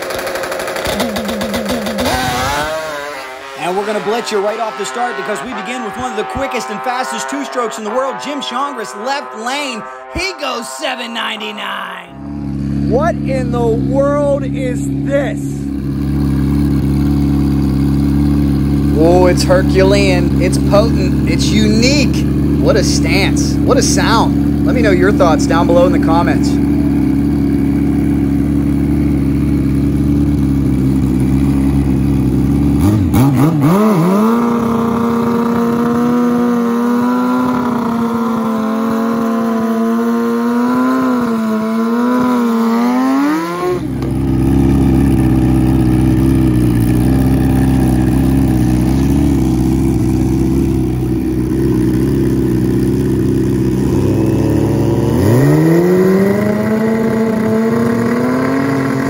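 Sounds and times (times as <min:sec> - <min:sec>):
engine revving: 0:00.0 - 0:59.0
low engine drone: 0:00.0 - 0:59.0
racing motorcycle accelerating: 0:00.0 - 0:59.0.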